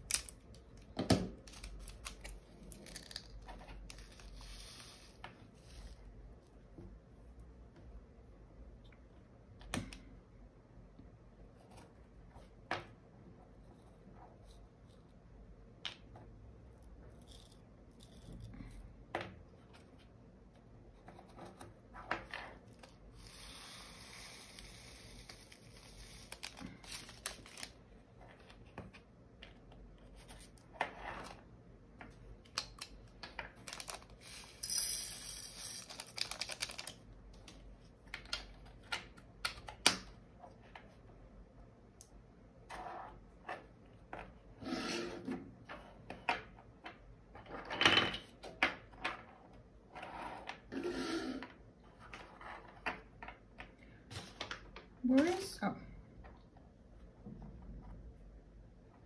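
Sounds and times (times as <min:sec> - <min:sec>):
plastic bags rustling and tearing: 0:26.2 - 0:27.7.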